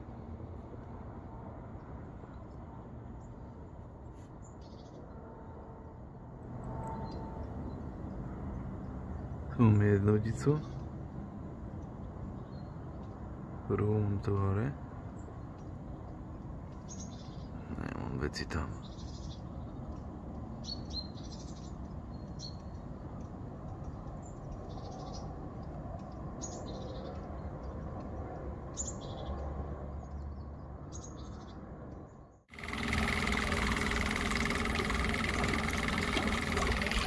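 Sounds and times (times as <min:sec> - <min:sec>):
churning water: 0:32.5 - 0:37.0
electric motor whine: 0:32.5 - 0:37.0
low steady rumble: 0:32.5 - 0:37.0.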